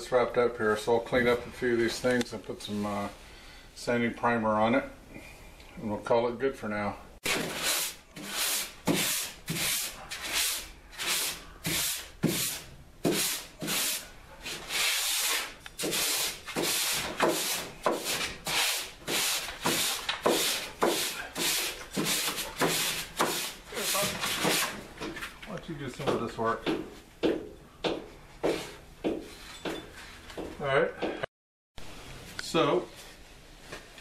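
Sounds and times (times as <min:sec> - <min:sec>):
sanding pad rasping strokes: 0:07.3 - 0:24.7.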